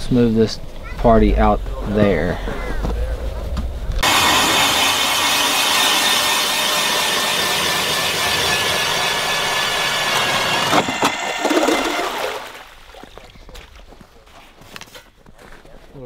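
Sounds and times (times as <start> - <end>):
ice auger motor whining: 4.0 - 12.7
slush water welling up: 4.0 - 13.4.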